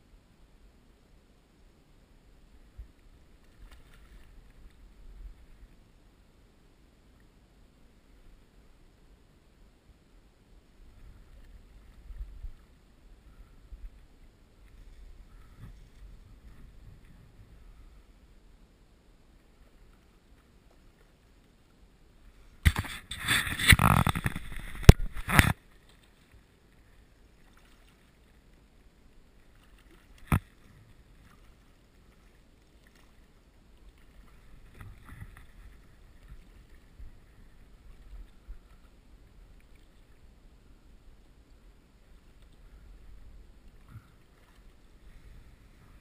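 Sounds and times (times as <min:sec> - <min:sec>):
faint scattered water sounds: 0:00.0 - 0:46.0
fish splashing and thrashing: 0:22.7 - 0:25.6.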